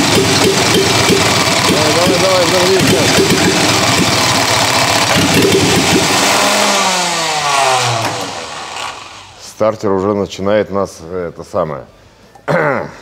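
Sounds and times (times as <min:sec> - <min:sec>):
starter cranking engine: 0:00.0 - 0:09.4.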